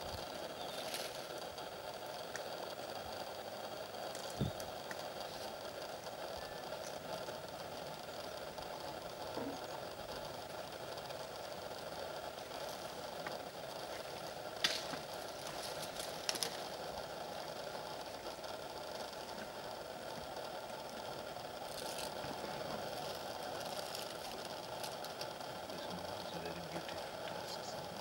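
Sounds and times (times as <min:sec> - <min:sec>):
vehicle engine idling: 0:00.0 - 0:28.0
branches cracking: 0:14.6 - 0:16.7.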